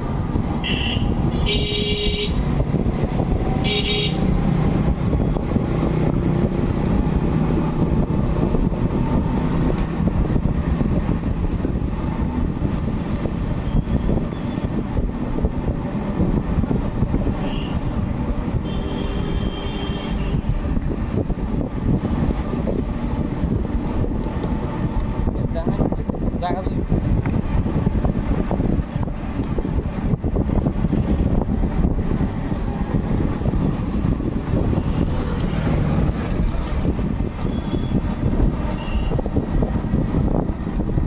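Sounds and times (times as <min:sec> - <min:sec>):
vehicle rumble: 0:00.0 - 0:41.0.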